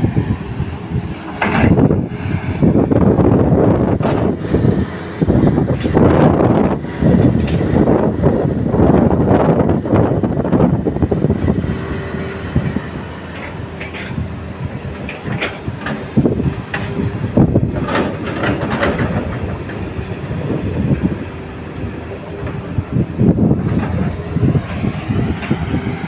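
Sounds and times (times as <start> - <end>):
excavator diesel engine under load: 0.0 - 26.0
metallic clanks from excavator bucket: 4.0 - 4.4, 13.3 - 14.2, 17.7 - 19.8.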